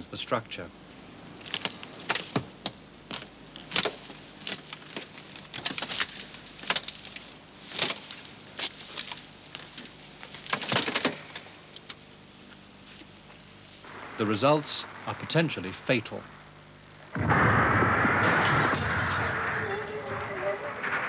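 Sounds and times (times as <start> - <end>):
rusted steel creaking and cracking: 3.1 - 12.0, 18.2 - 21.0.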